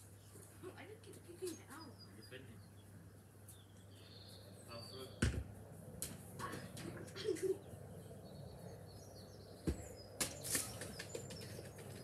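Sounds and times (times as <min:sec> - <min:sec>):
football kicked thud: 0:05.2 - 0:05.5, 0:09.6 - 0:10.4.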